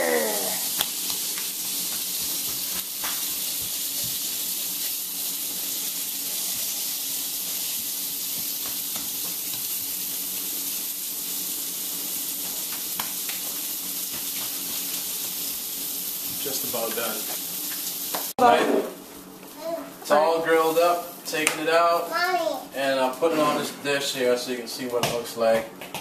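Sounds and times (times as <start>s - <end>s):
fish sizzling in a frying pan: 0.0s - 18.4s.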